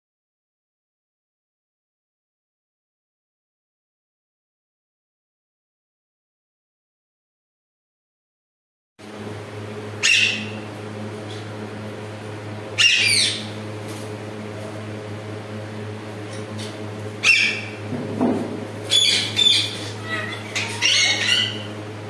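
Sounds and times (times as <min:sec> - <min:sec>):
steady low hum: 0:09.0 - 0:22.0
parakeet squawking: 0:10.0 - 0:10.6, 0:12.8 - 0:13.6, 0:16.6 - 0:17.8, 0:18.8 - 0:21.8.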